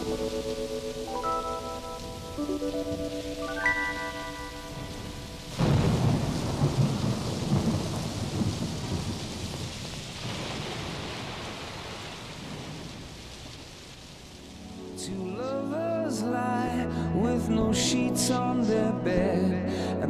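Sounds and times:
rain hissing: 0.0 - 15.8
thunder crack and rumble: 4.1 - 14.4.

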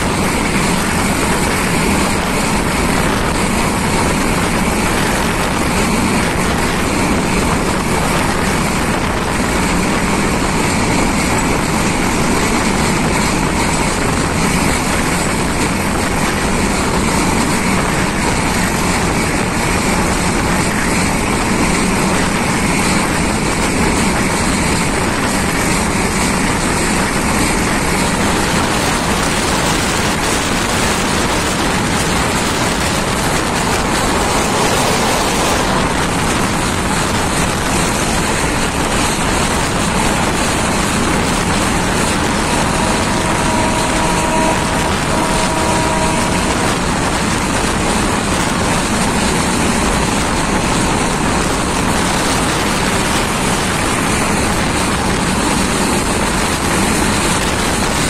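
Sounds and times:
two-tone train horn: 0.0 - 49.2
train wheels on track: 0.0 - 58.0
wind on microphone: 0.0 - 58.0.

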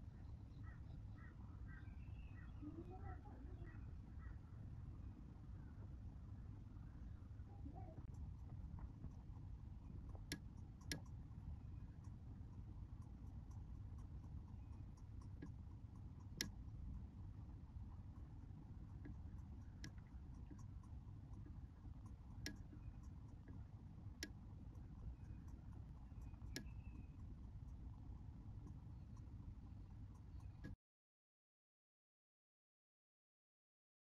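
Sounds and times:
faint low rumble: 0.0 - 30.8
tiny ticks: 8.0 - 30.8
sharp clicks: 10.1 - 11.2, 19.0 - 27.8.

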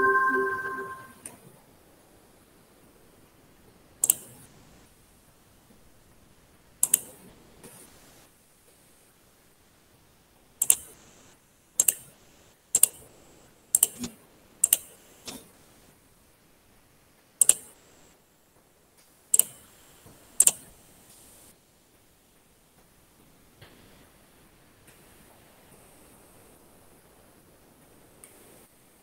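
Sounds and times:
computer key clicks: 11.8 - 12.0, 14.6 - 14.9, 17.4 - 17.7, 19.4 - 19.6.

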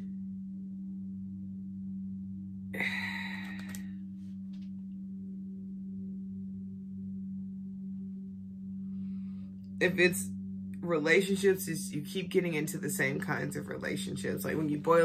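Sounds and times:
low electrical hum: 0.0 - 15.0
breathy sigh: 2.8 - 4.0.

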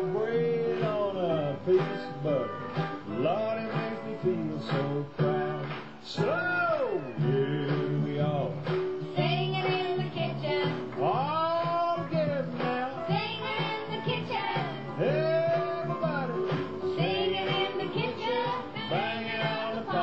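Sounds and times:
man and children singing: 0.0 - 8.5, 9.2 - 20.0
plucked guitar: 0.0 - 20.0.

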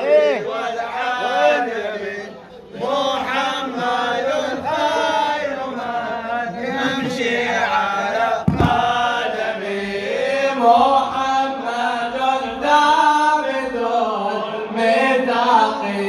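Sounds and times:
men chanting devotional song: 0.0 - 16.0
low thump: 8.4 - 9.1.

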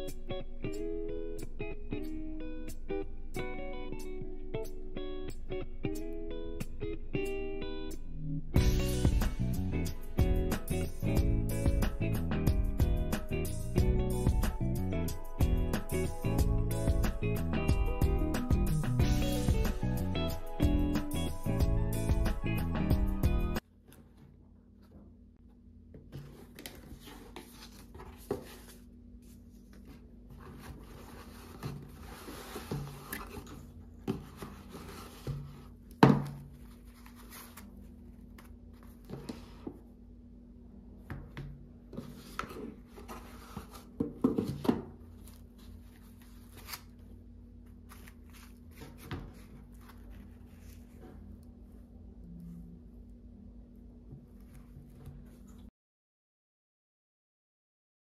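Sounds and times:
cardboard box rustling and scraping: 26.2 - 28.8, 29.8 - 35.7, 42.0 - 44.6.

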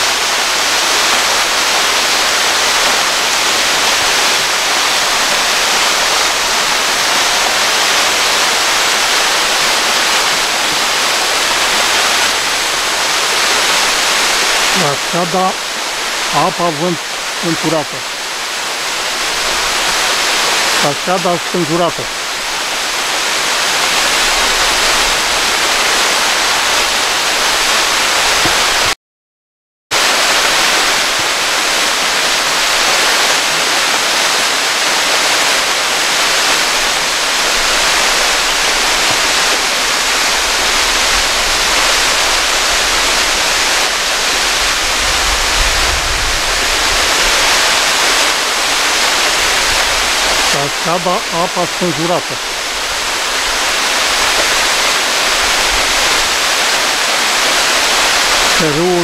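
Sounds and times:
waterfall rushing hiss: 0.0 - 29.0, 30.0 - 59.0.

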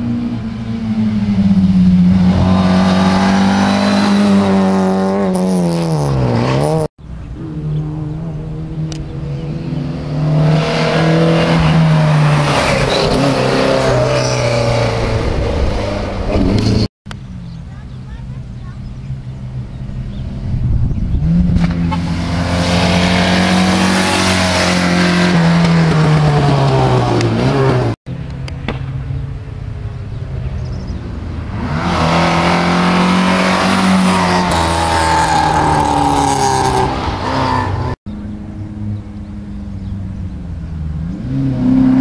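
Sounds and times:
rally cars passing at high revs: 0.0 - 16.9, 19.2 - 29.2, 30.2 - 42.0.

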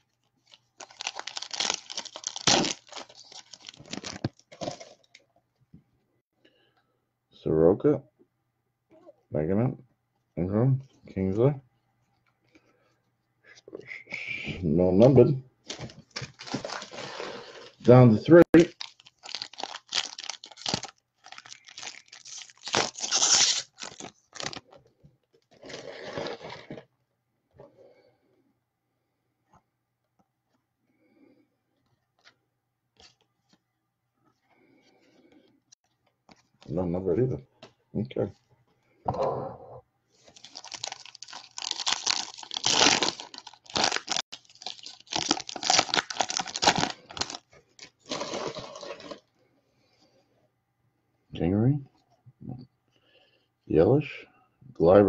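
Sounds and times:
foil wrapper tearing and crinkling: 0.5 - 5.0, 15.7 - 17.8, 18.6 - 24.7, 40.3 - 49.2.

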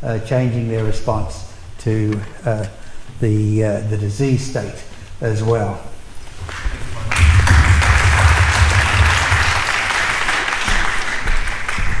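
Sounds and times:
audience applause: 6.5 - 12.0
low rumble: 6.9 - 9.7.

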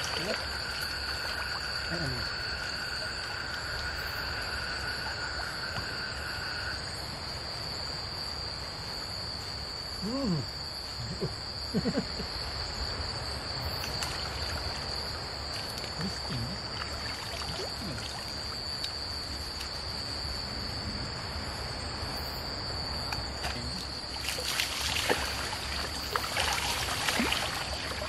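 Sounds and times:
insects shrilling: 0.0 - 7.0
running stream water: 0.0 - 8.0, 12.3 - 20.5, 21.3 - 28.0
lower insect trill: 0.0 - 28.0.

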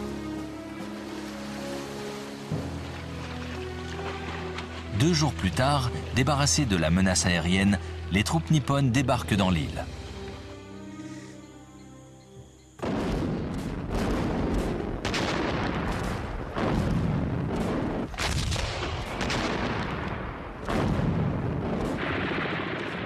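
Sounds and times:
heavy artillery blasts: 12.8 - 23.0.

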